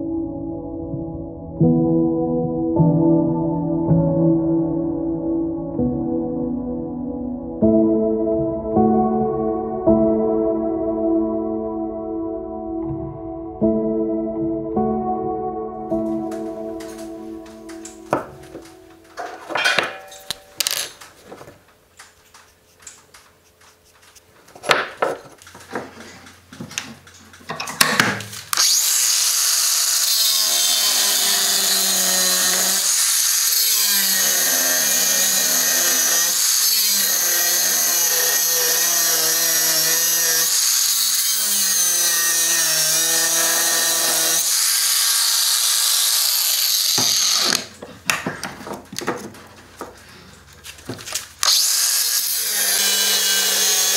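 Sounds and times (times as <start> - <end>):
angle grinder cutting steel: 28.5 - 47.8, 51.4 - 53.9.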